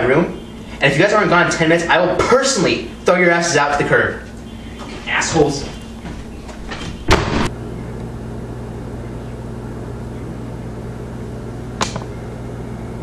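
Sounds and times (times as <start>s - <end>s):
low room hum: 0.0s - 13.0s
door slamming shut: 4.8s - 7.5s.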